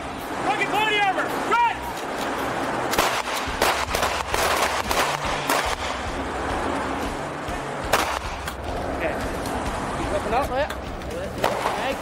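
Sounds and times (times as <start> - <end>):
pistol shots: 2.9 - 6.1, 7.9 - 8.5.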